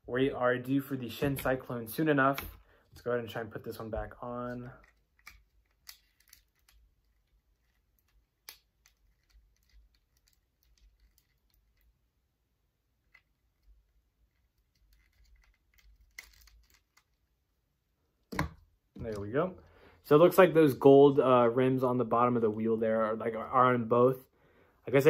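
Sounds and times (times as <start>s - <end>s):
plastic parts clicking: 4.5s - 11.8s, 14.3s - 17.2s.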